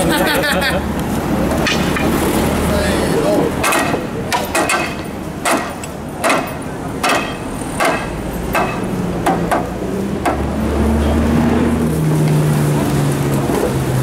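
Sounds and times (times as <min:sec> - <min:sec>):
hammer striking iron rings: 0:03.6 - 0:10.4.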